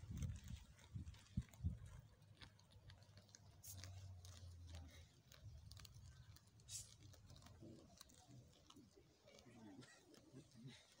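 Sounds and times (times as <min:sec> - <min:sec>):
animals tearing grass: 0:00.0 - 0:11.0.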